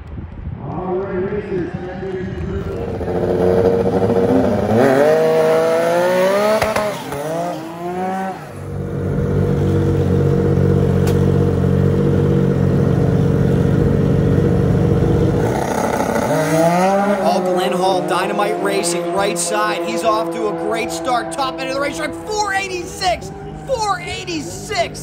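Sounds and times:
engine revving: 0:02.6 - 0:25.0.

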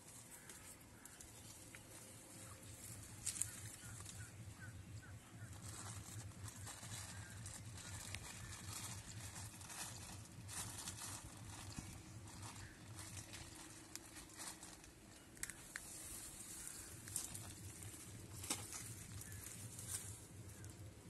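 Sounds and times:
low steady background hum: 0:00.0 - 0:21.0
plastic bag rustling: 0:05.3 - 0:21.0.

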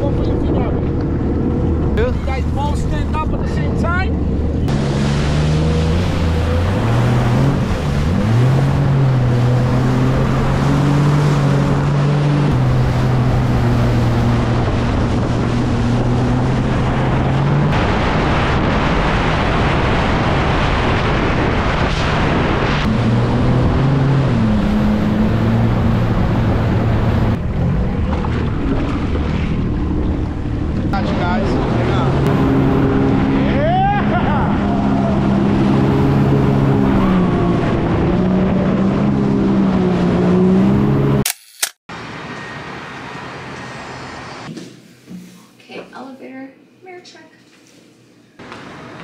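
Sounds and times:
jet ski engine running: 0:00.0 - 0:21.2
wind buffeting microphone: 0:12.5 - 0:23.9.

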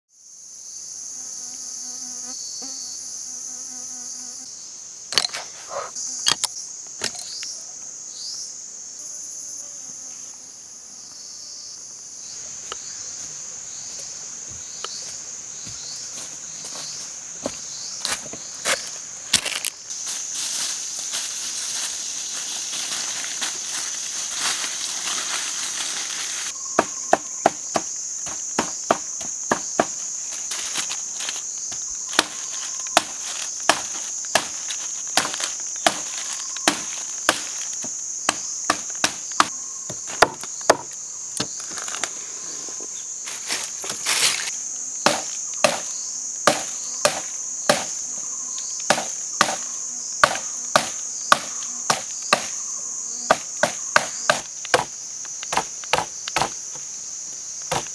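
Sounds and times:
insects droning: 0:00.1 - 0:57.9
knife chopping wood: 0:26.8 - 0:30.0, 0:32.1 - 0:41.8, 0:45.0 - 0:45.9, 0:46.5 - 0:48.0, 0:48.9 - 0:49.6, 0:50.2 - 0:52.5, 0:53.3 - 0:56.8, 0:57.7 - 0:57.9.

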